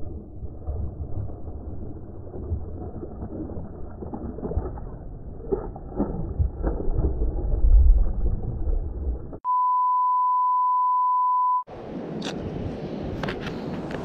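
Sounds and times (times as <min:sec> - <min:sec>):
censor bleep: 0:09.4 - 0:11.7.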